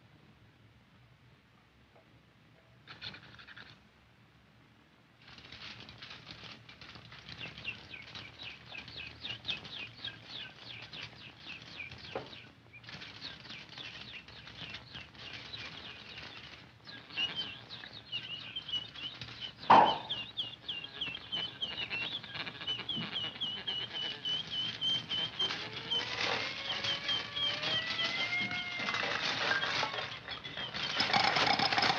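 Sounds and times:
cartoon squeaky chirping: 19.6s - 27.6s
sharp pop: 19.7s - 20.1s.

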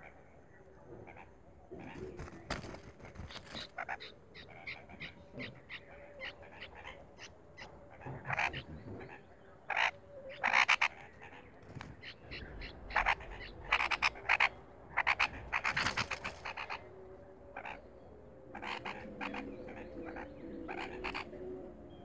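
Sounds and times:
bulbuls calling: 0.0s - 22.0s.

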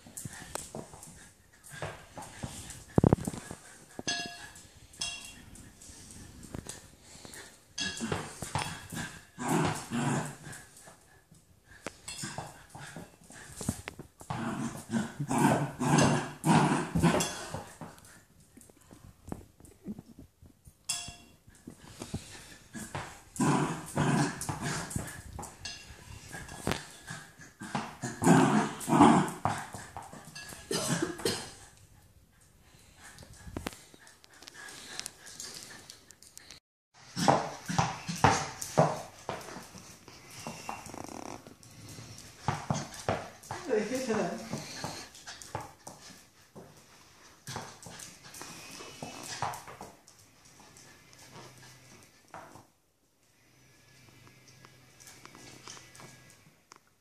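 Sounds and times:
dog growling in play: 7.8s - 10.7s, 14.2s - 17.8s, 22.4s - 25.5s, 26.2s - 29.9s, 40.3s - 42.3s.

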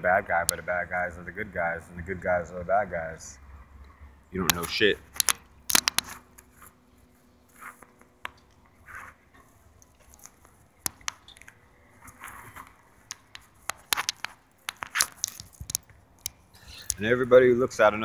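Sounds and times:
sharp handling clicks: 4.4s - 6.5s, 12.6s - 17.1s.

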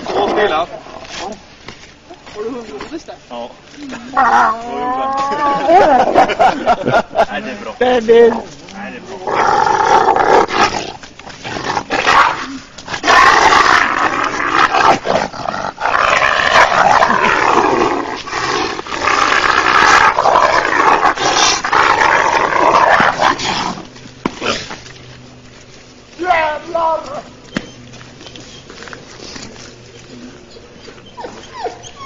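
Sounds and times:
wolf growling and snarling: 4.1s - 6.3s, 9.2s - 24.8s.

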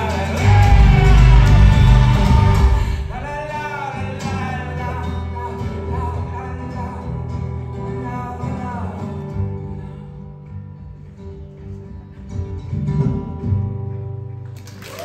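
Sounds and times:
man singing: 0.0s - 10.3s
acoustic guitar: 0.0s - 15.0s.

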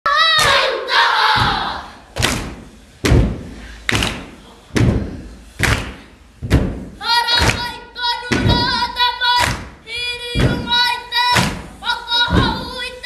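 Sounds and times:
children shouting: 0.1s - 2.0s
heavy stamps in unison: 1.3s - 12.9s.

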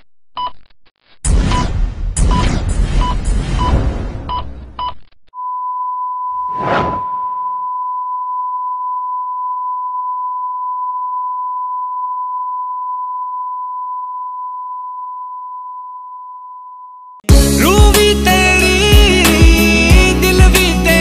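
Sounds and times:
steady electronic beep tone: 2.3s - 15.2s.

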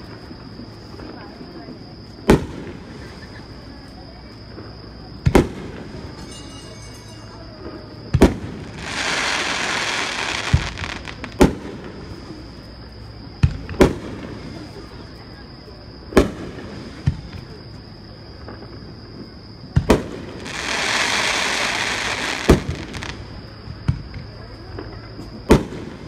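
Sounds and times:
firework hissing: 7.5s - 15.2s, 20.0s - 24.6s.

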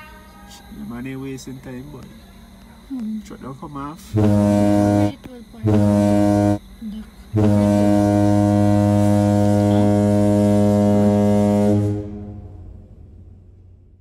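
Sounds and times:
ship horn blasts: 0.0s - 0.7s, 4.1s - 6.6s, 7.3s - 13.3s.

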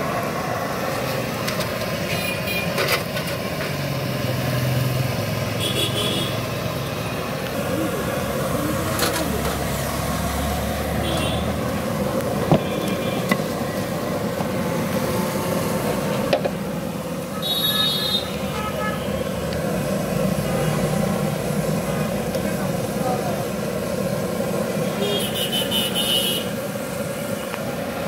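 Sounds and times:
traffic noise: 0.0s - 28.0s
background voices: 7.4s - 10.7s.

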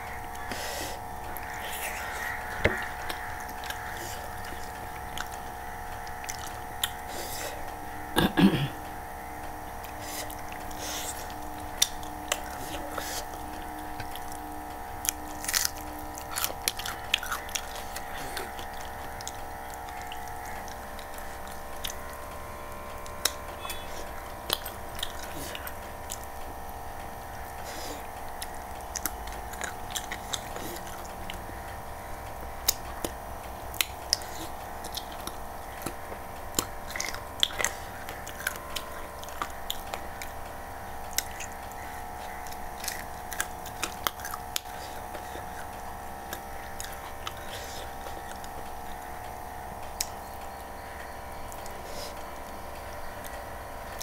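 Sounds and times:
close chewing: 0.0s - 54.0s
steady background hum: 0.0s - 54.0s
wet mouth clicks and smacks: 32.6s - 40.4s.

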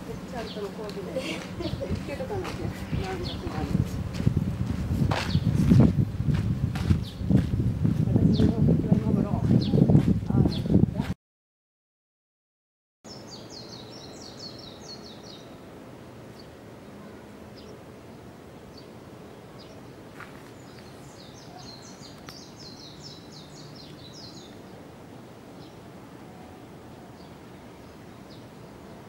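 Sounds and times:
songbird chirping: 0.0s - 3.9s, 8.2s - 9.8s, 13.1s - 29.0s.

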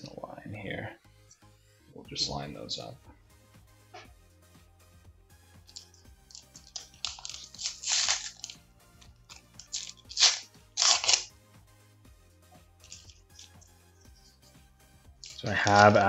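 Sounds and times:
quiet background music: 0.0s - 16.0s
packaging crinkling and tearing: 5.7s - 8.6s, 9.3s - 11.3s, 12.9s - 13.6s, 15.2s - 16.0s.

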